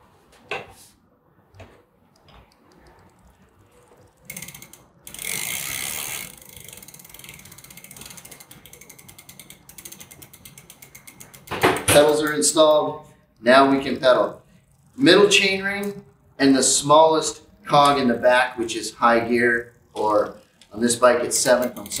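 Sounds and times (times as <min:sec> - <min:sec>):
freewheel ratchet clicking: 0:02.2 - 0:22.0
chain running over cogs: 0:03.2 - 0:12.5
wrench knocks: 0:11.0 - 0:12.4.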